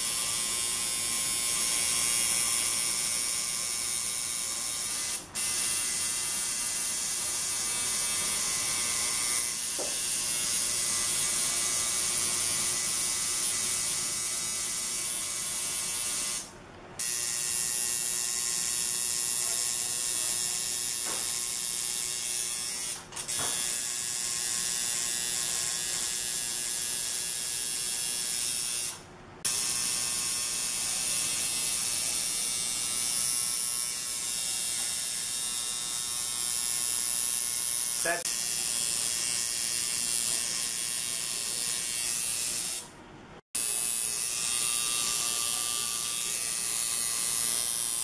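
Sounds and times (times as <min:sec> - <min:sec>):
tattoo machine buzzing: 0:00.0 - 0:43.0, 0:43.6 - 0:48.0.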